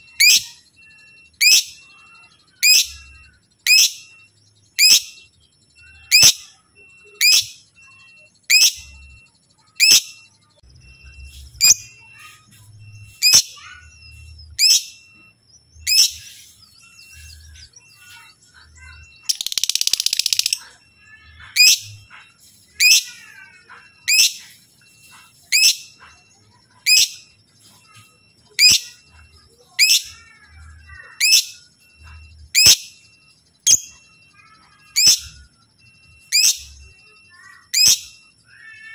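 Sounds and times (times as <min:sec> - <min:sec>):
lovebird chirping: 0:00.0 - 0:38.9
harsh bird chattering: 0:15.8 - 0:29.0.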